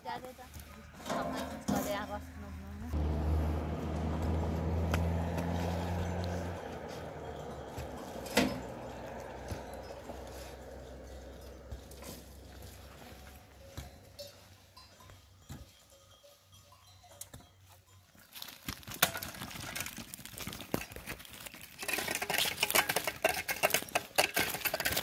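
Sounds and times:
flock of goats and sheep moving: 0.0s - 25.0s.

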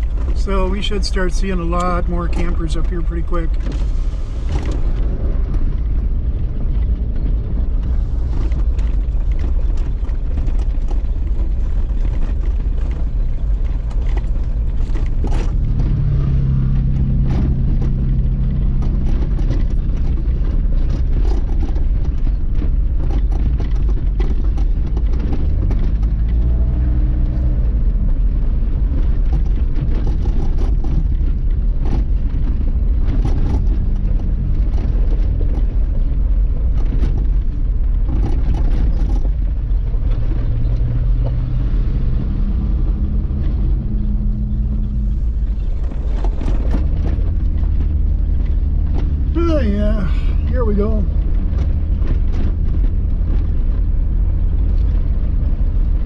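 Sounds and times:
engine hum changing pitch: 0.0s - 20.3s, 39.8s - 55.7s
car engine and tyre rumble: 0.0s - 56.0s.

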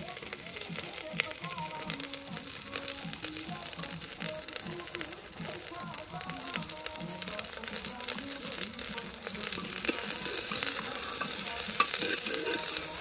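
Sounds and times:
meat and onions sizzling in pot: 0.0s - 13.0s
metal ladle scraping pot: 9.6s - 13.0s.

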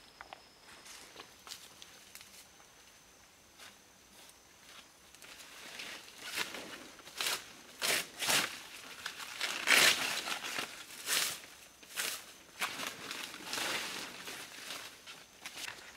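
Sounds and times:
dry leaves rustling and ripping: 6.1s - 11.4s.

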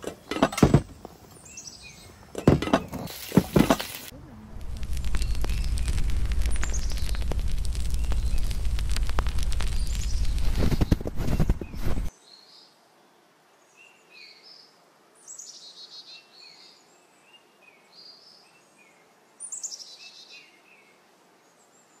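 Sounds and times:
songbirds singing: 0.9s - 3.1s, 4.8s - 22.0s
loud crackling noise: 2.8s - 12.1s.

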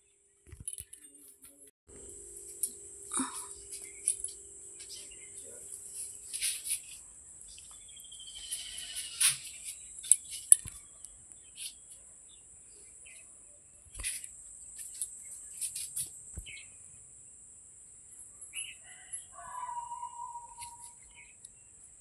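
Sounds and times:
high insect buzz: 1.9s - 10.6s, 14.0s - 17.4s
short bird chirps: 19.5s - 21.3s.

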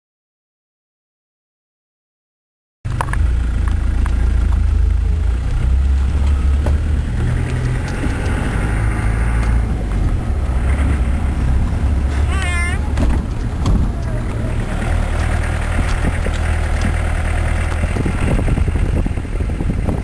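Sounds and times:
vehicle engine and tyres rumbling: 2.9s - 20.0s
knocks and rattles: 12.9s - 18.7s.

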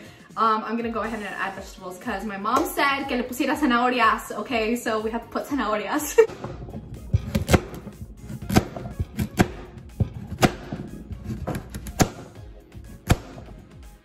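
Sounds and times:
background music: 0.0s - 14.0s
knife chopping carrot on board: 7.1s - 12.4s, 13.0s - 13.6s.

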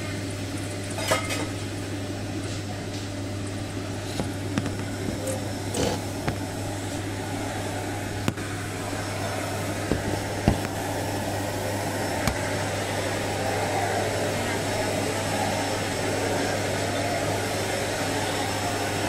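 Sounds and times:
gas burner hum and rush: 0.0s - 19.0s
pot boiling: 0.0s - 19.0s.

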